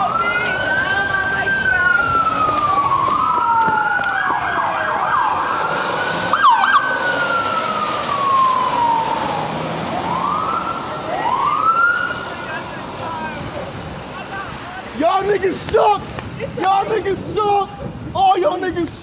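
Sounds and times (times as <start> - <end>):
siren yelp warbling: 0.0 - 12.5
police sirens wailing: 0.0 - 18.7.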